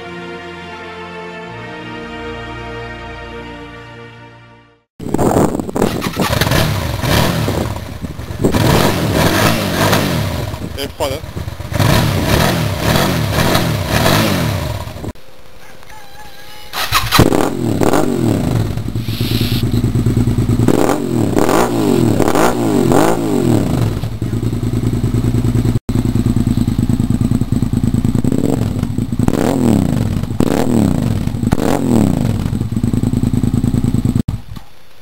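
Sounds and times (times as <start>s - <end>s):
motorcycle engine revving: 5.0s - 15.2s, 16.8s - 34.6s
motorcycle engine idling: 7.6s - 8.6s, 10.3s - 14.1s, 18.5s - 20.7s, 23.6s - 29.4s, 31.1s - 31.6s, 32.2s - 34.7s.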